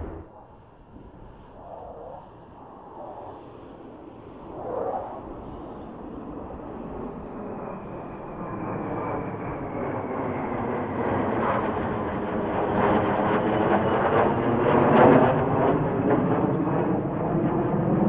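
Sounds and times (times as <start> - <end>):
faint high whine: 0.0 - 10.3
jet roar overhead: 0.0 - 18.0.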